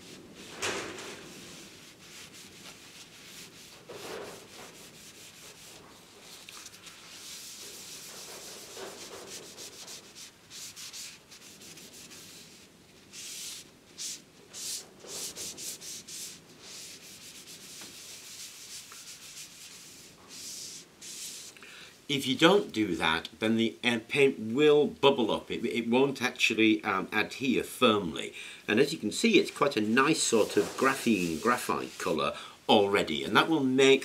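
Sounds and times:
cloth wiping paint onto metal: 0:00.0 - 0:21.6, 0:28.9 - 0:32.4.

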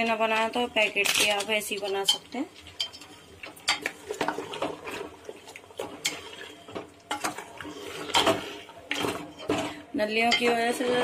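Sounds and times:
wet squelchy mixing: 0:00.0 - 0:11.0.

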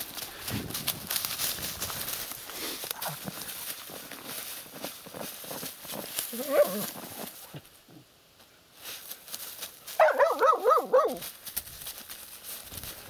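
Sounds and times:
dogs rustling in dry reeds: 0:00.0 - 0:07.8, 0:08.7 - 0:13.0
dog whining: 0:06.3 - 0:06.9
dogs yelping: 0:06.3 - 0:06.9, 0:10.0 - 0:11.2.

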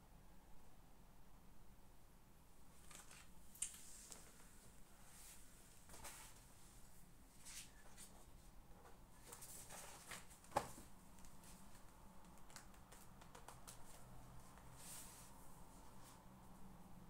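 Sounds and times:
paper rustling: 0:02.8 - 0:04.5, 0:05.3 - 0:06.5, 0:07.4 - 0:15.3.

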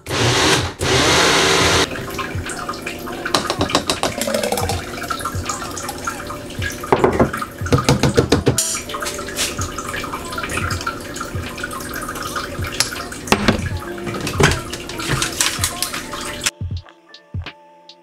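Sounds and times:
blender motor running: 0:00.0 - 0:01.9
smoothie glugging and splashing: 0:01.8 - 0:16.5
plastic cup knocking on glass: 0:03.4 - 0:04.8, 0:06.9 - 0:08.6.

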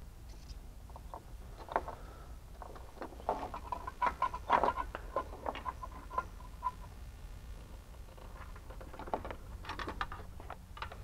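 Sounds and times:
plastic parts clicking and rustling: 0:00.9 - 0:06.5, 0:08.1 - 0:11.0.

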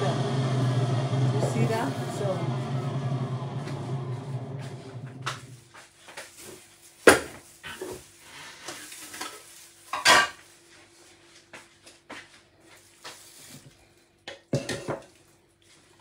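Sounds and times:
juicer motor running down: 0:00.0 - 0:05.7
kitchenware clinking and knocking: 0:14.3 - 0:15.1.

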